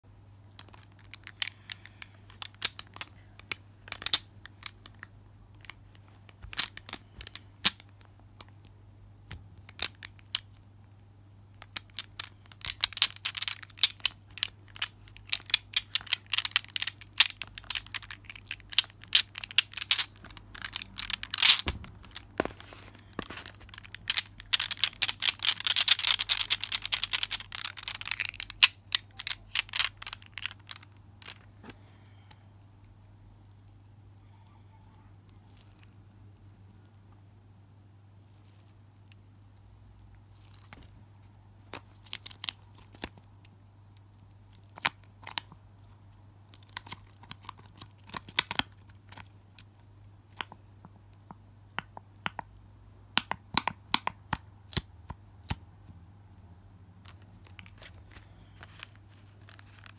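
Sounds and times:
fidget balls clicking together: 0.5 - 8.6, 11.5 - 22.5, 23.2 - 31.5.

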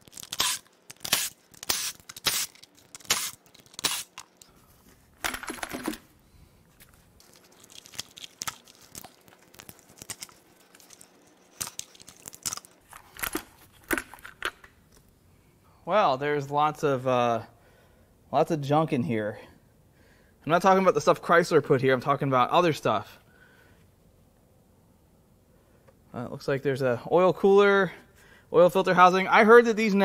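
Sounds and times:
plastic and metal parts rattling: 5.2 - 6.1.

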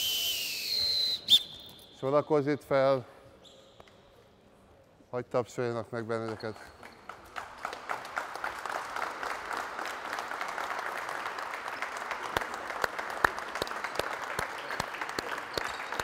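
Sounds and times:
group applauding: 6.3 - 16.0.

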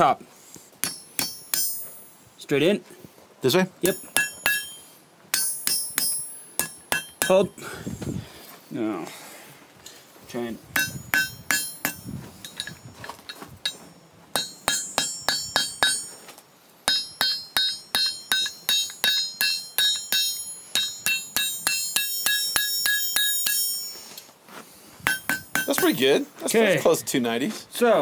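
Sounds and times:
hammer striking iron on anvil: 0.8 - 2.1, 3.8 - 7.6, 10.8 - 12.9, 13.6 - 16.2, 16.8 - 24.1, 25.0 - 26.1.

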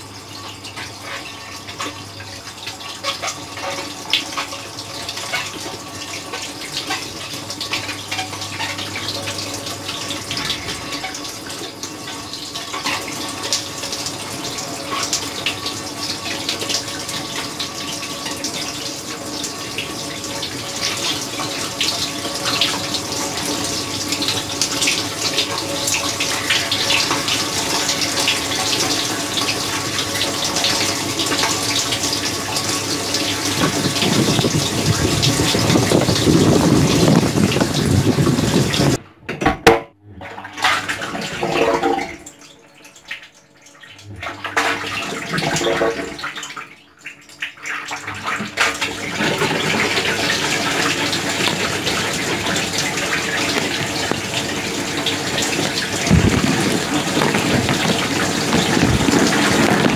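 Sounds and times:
wash pump hum: 0.0 - 39.1, 43.7 - 59.9
dishwasher water spray splashing: 0.7 - 39.0, 47.6 - 59.9
water gushing against camera: 20.1 - 39.0, 40.1 - 42.4, 43.8 - 59.9.

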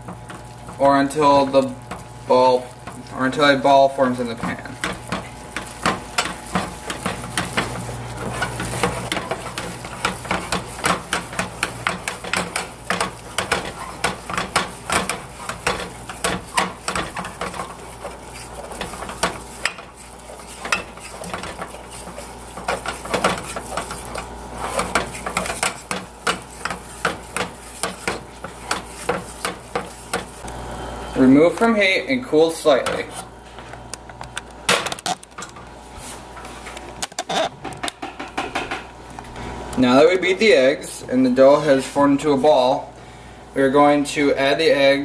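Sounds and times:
wooden spoon beating dough in saucepan: 0.0 - 30.5.

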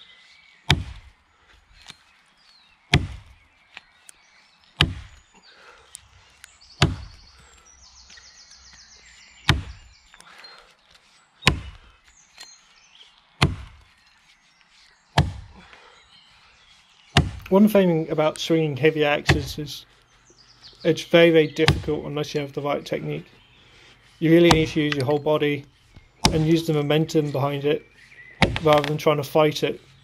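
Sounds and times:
axe chopping tree trunk: 0.6 - 1.1, 2.9 - 3.4, 4.8 - 5.2, 6.8 - 7.2, 9.4 - 9.9, 11.4 - 11.9, 13.4 - 13.9, 15.2 - 15.6, 17.1 - 17.6, 19.2 - 19.7, 21.6 - 22.0, 24.4 - 25.2, 26.2 - 26.8, 28.4 - 29.0.

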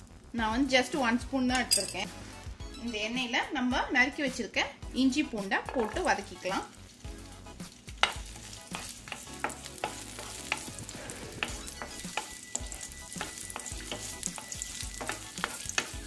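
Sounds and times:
garlic sizzling in hot oil: 4.2 - 16.0
wooden spatula scraping a pan: 7.7 - 16.0.

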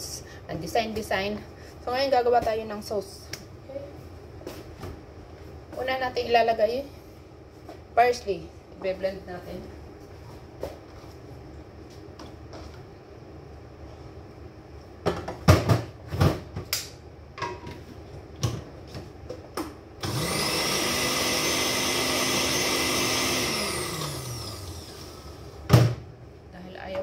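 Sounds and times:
electric blender running: 20.0 - 25.4.

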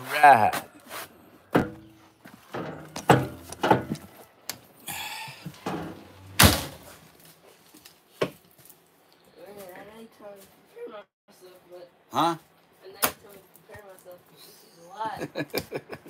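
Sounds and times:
loud thud: 1.5 - 2.0, 5.6 - 7.0
knocks and thumps of footsteps: 1.5 - 4.6.

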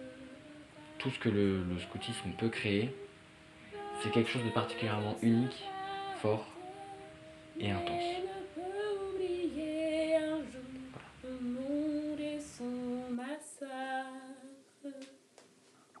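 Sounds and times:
woman singing: 0.0 - 15.2.

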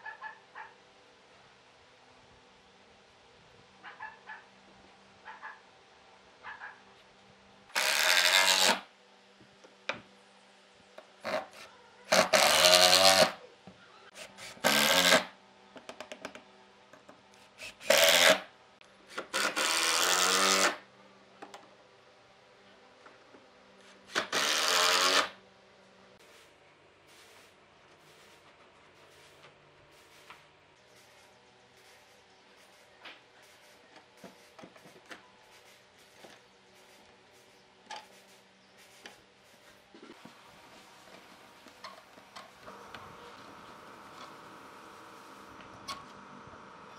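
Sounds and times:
impact driver driving screws: 7.8 - 8.8, 12.1 - 13.4, 17.6 - 18.4, 24.1 - 25.4.

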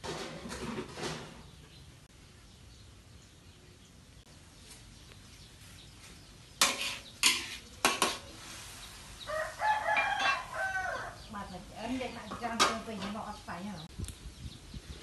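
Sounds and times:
metal spatula clanging on wok: 6.6 - 8.2
rooster crowing: 9.3 - 11.3.

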